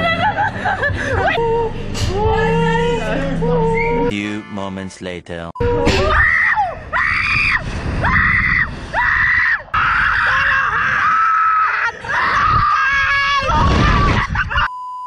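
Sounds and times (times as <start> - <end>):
people screaming: 5.6 - 14.7.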